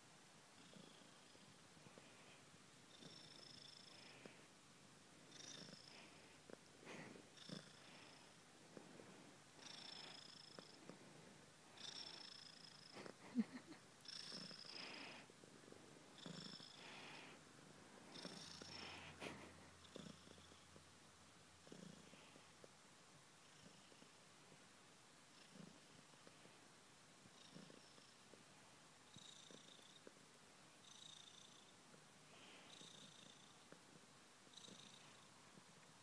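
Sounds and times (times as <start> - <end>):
kitten purring: 0.6 - 4.4, 5.2 - 15.3, 16.1 - 17.4, 18.0 - 21.0, 21.6 - 22.6, 25.3 - 26.6, 27.3 - 28.4, 29.1 - 30.2, 30.9 - 36.0.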